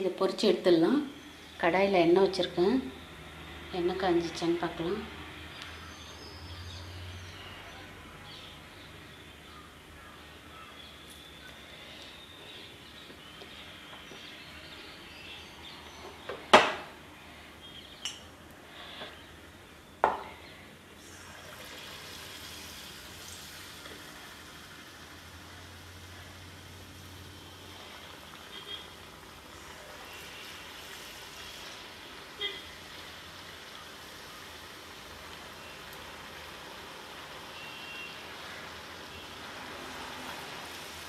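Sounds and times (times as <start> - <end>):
batter sizzling in hot oil: 21.0 - 41.0.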